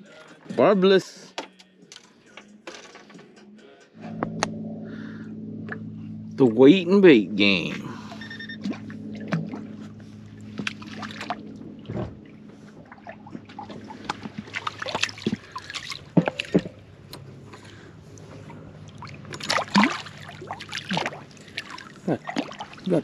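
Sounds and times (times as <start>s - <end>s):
water splashing and dripping: 8.0s - 23.0s.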